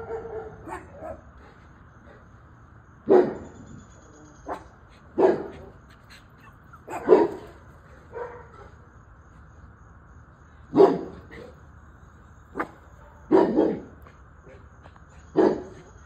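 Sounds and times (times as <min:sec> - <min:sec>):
dog barking: 0:00.0 - 0:01.3, 0:03.0 - 0:03.5, 0:04.4 - 0:05.7, 0:06.4 - 0:08.8, 0:10.7 - 0:11.5, 0:12.6 - 0:14.0, 0:15.4 - 0:15.9.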